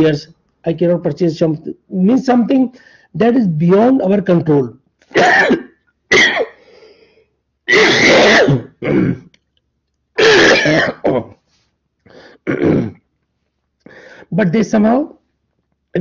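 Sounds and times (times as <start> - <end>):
person clearing throat: 5.1 - 6.6, 7.7 - 9.4, 10.2 - 11.4, 12.4 - 13.1
person coughing: 5.1 - 6.6, 7.7 - 9.3, 10.2 - 11.4, 12.3 - 13.0.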